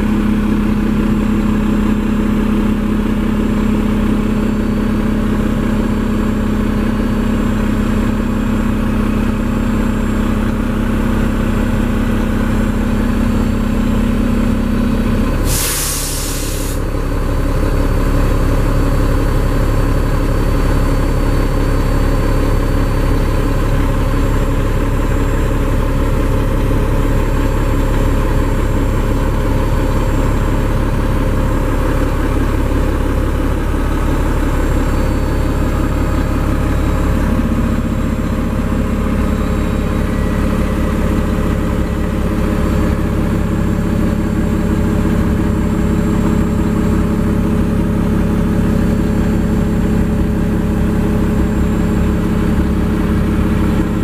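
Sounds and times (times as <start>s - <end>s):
diesel engine idling: 0.0s - 54.0s
air brake hiss: 15.4s - 16.9s.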